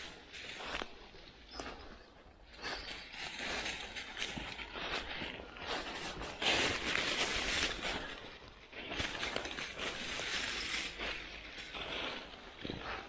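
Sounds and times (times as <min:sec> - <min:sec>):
dry leaves rustling: 0:00.0 - 0:13.0
footsteps through leaves: 0:00.0 - 0:13.0.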